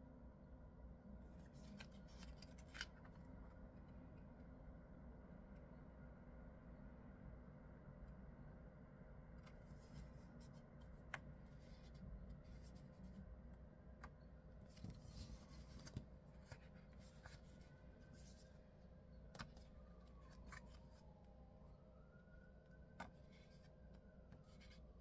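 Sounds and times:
low room hum: 0:00.0 - 0:25.0
paper pages rustling: 0:01.4 - 0:03.2, 0:14.6 - 0:18.5, 0:19.4 - 0:21.0.

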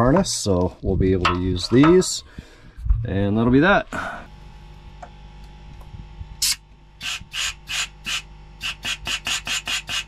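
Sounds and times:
compressed air hissing blasts: 0:06.4 - 0:10.0.

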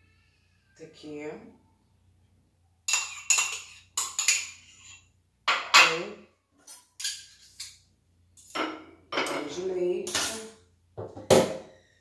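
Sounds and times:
spoon clinking against cup: 0:02.9 - 0:05.0.

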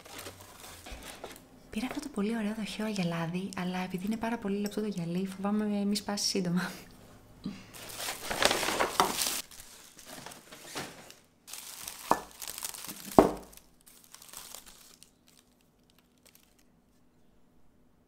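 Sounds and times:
packaging crinkling: 0:00.0 - 0:02.1, 0:07.8 - 0:16.7.

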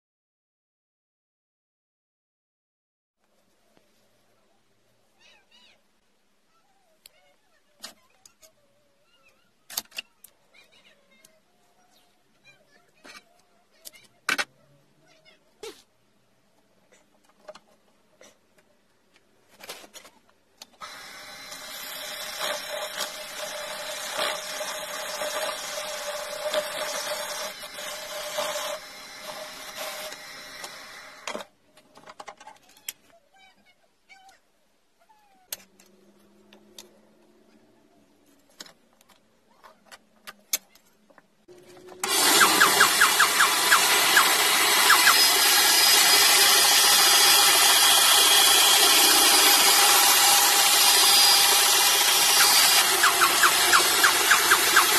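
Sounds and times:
lathe running: 0:20.8 - 0:31.3, 0:42.0 - 0:54.9
band saw cutting wood: 0:20.8 - 0:31.4, 0:41.9 - 0:54.9.

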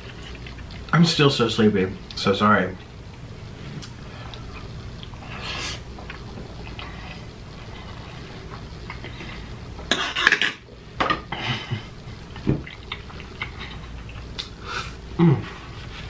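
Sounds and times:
cutlery clinking on dishes: 0:09.9 - 0:11.2.

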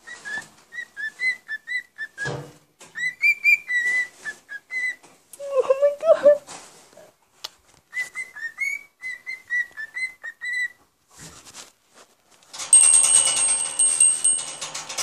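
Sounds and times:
cockatiel whistling: 0:00.0 - 0:02.3, 0:03.0 - 0:05.0, 0:07.9 - 0:10.8
metallic jingle ringing: 0:12.6 - 0:15.0.

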